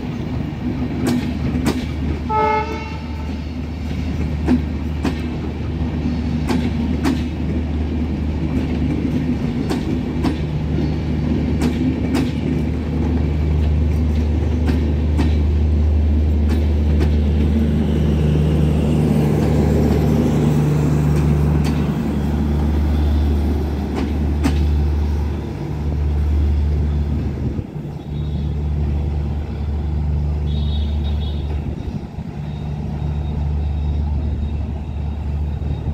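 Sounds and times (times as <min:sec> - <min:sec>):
train rumbling past: 0:00.0 - 0:35.9
wheels clicking over rail joints: 0:03.2 - 0:17.8, 0:18.4 - 0:26.2.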